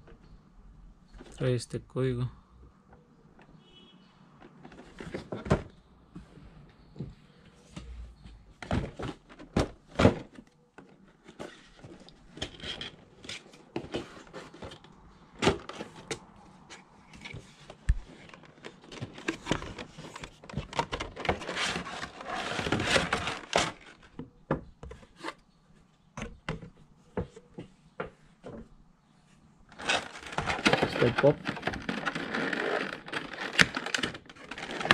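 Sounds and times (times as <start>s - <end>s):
plastic scraping against cardboard: 4.4s - 5.8s, 8.6s - 25.4s, 29.7s - 34.9s.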